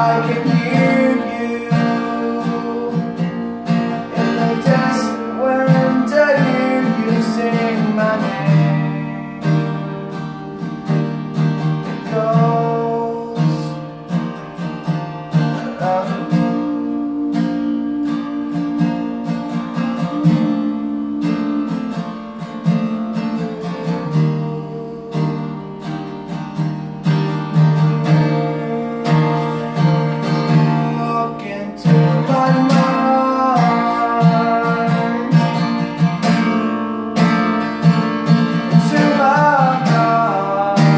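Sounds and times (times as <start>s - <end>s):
man singing: 0.0s - 10.9s, 11.7s - 14.3s, 15.4s - 26.0s, 27.4s - 40.9s
acoustic guitar strumming: 0.0s - 40.9s.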